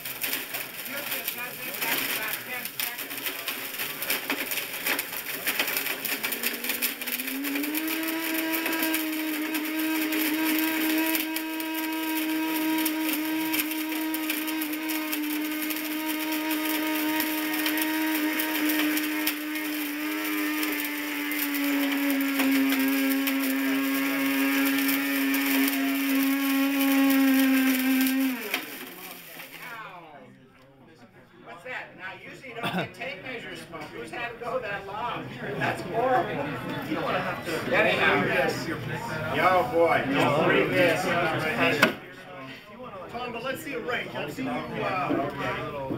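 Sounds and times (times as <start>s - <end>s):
blender motor running: 0.0s - 29.8s
debris rattling in blender jar: 0.0s - 29.8s.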